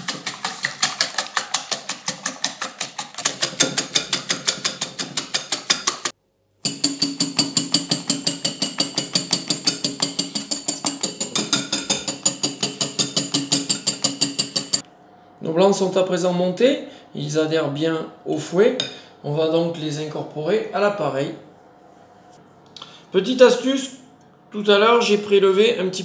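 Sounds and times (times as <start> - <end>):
whisk clattering against bowl: 0.0 - 14.8.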